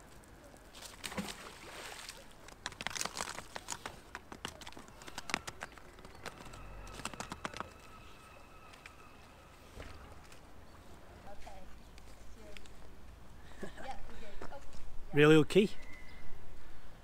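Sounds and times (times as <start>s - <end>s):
rope clicking and rustling: 0.0s - 7.8s
faint steady high tone: 5.8s - 10.8s.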